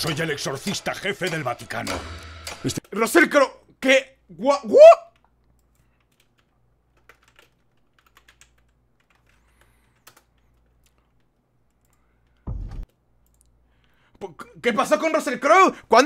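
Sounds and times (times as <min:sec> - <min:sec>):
computer keyboard typing: 0:05.1 - 0:13.5
low thump: 0:12.5 - 0:12.8.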